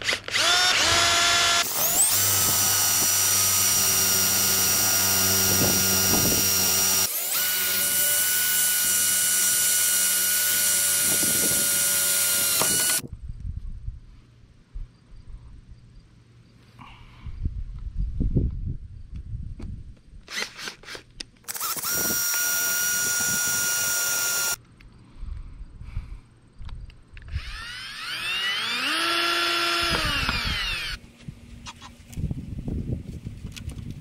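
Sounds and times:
power drill driving screws: 0:00.0 - 0:13.0, 0:20.3 - 0:24.6, 0:27.3 - 0:31.0.

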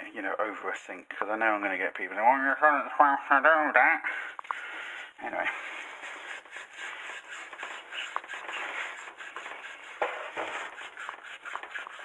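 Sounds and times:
scraping and rubbing metal part: 0:05.4 - 0:12.0.

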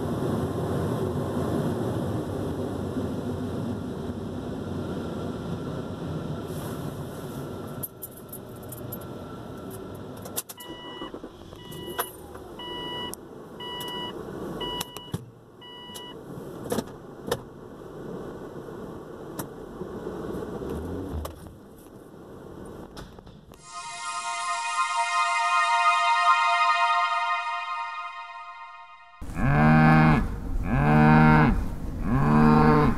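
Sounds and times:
car warning chime beeping: 0:10.6 - 0:16.2.

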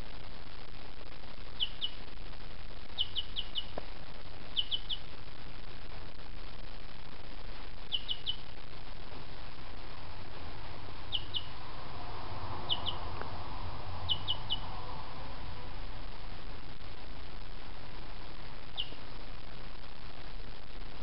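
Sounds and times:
steady hiss: 0:00.0 - 0:21.0
chick peeping: 0:01.6 - 0:02.1, 0:03.0 - 0:03.8, 0:04.5 - 0:05.1, 0:07.9 - 0:08.6, 0:11.0 - 0:11.7, 0:12.5 - 0:14.8, 0:18.7 - 0:19.0.

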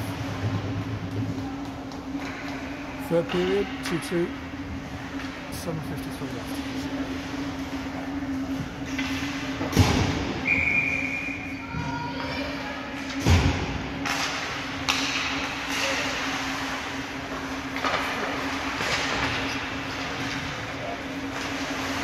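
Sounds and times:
low arena hum: 0:00.0 - 0:22.0
hockey sticks and puck knocking: 0:14.0 - 0:15.8.

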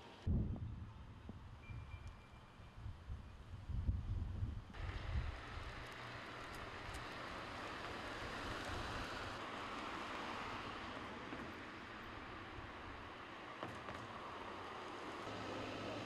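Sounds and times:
wind: 0:00.0 - 0:16.0
road traffic: 0:04.7 - 0:16.0.

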